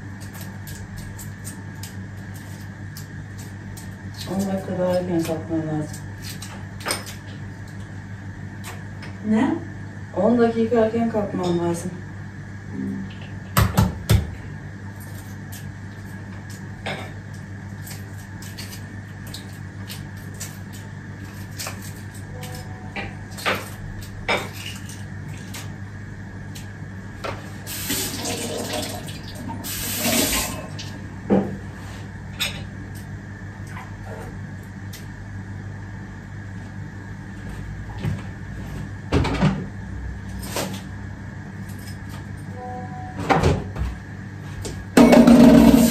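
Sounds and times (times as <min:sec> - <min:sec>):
steady low hum: 0:00.0 - 0:45.9
kitchen tap running: 0:27.7 - 0:30.9.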